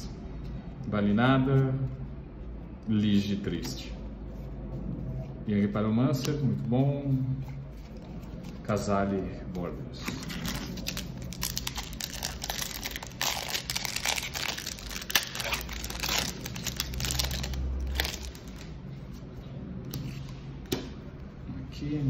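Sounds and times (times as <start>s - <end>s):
cards rustling: 7.4s - 19.2s
foil wrapper tearing and crinkling: 10.2s - 18.6s.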